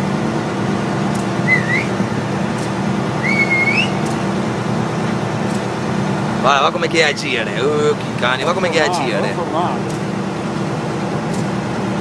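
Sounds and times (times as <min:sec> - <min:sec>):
person whistling rising pitch: 0:01.5 - 0:02.0, 0:03.2 - 0:04.0.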